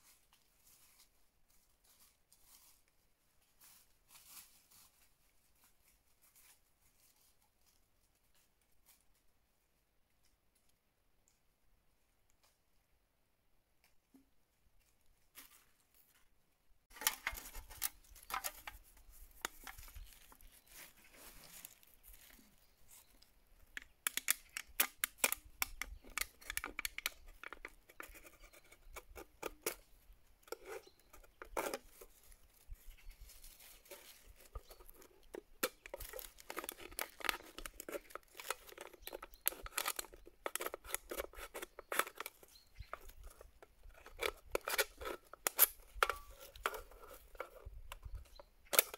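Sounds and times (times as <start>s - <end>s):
knife cutting aluminium can: 34.1s - 47.7s.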